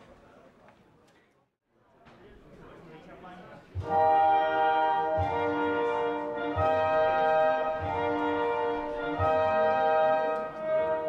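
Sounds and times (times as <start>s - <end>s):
brass orchestral chords: 3.8s - 11.0s.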